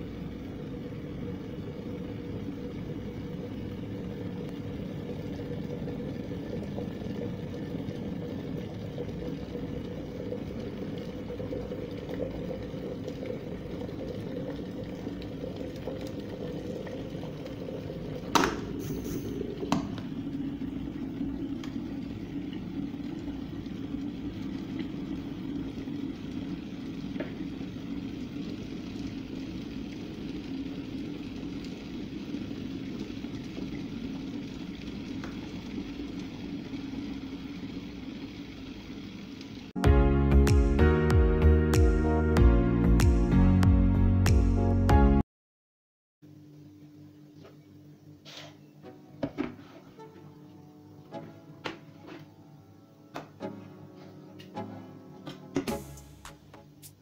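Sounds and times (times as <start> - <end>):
kettle water bubbling: 0.0 - 39.8
kettle lid clicks: 18.3 - 18.7.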